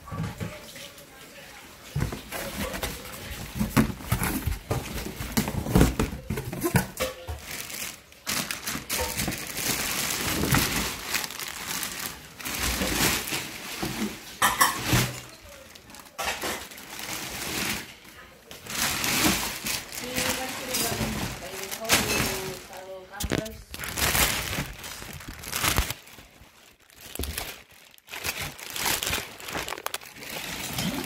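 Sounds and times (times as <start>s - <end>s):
plastic bag crinkling: 0.4s - 31.0s
cardboard box rustling and scraping: 2.0s - 6.8s.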